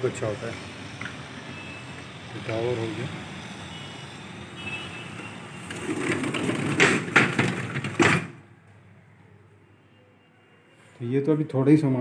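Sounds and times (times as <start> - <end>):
city traffic: 0.0 - 12.0
sliding window scraping: 5.6 - 8.4
window clacks and rattles: 5.8 - 8.4.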